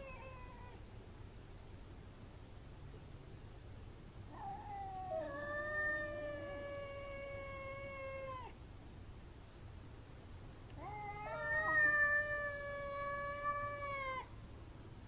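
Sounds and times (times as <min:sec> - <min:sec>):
cat yowling: 0:00.0 - 0:00.8, 0:04.3 - 0:08.5, 0:10.8 - 0:14.3.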